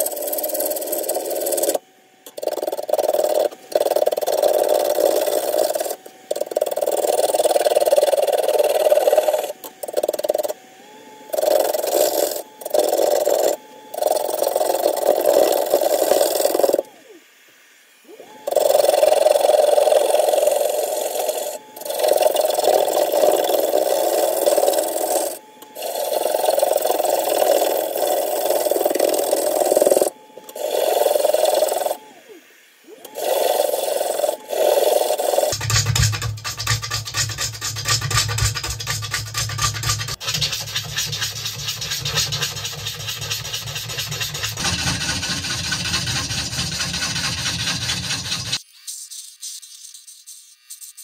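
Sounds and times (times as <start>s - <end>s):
gouge cutting wood on lathe: 0.0s - 17.0s, 18.1s - 32.2s, 32.9s - 48.6s.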